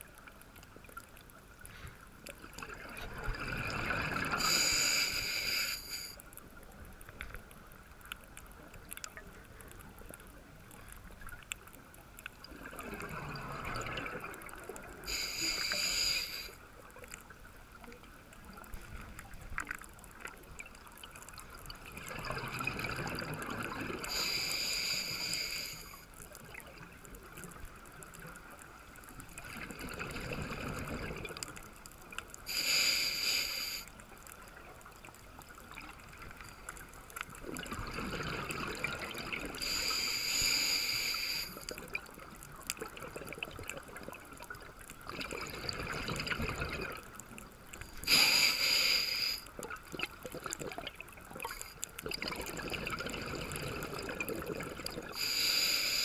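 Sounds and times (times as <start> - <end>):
exhaled bubbles gurgling: 2.4 - 5.7, 12.4 - 15.7, 20.1 - 24.4, 26.2 - 32.2, 34.3 - 48.5, 49.5 - 55.4
regulator inhalation hiss: 4.3 - 6.2, 15.1 - 16.6, 24.1 - 26.1, 32.5 - 34.0, 39.6 - 41.7, 48.0 - 49.6, 55.2 - 56.0.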